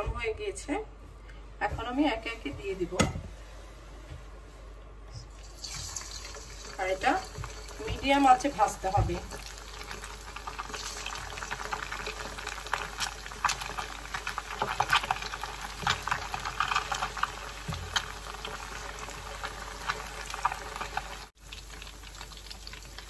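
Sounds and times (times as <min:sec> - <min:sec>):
oil sizzling and popping: 0:05.4 - 0:23.0.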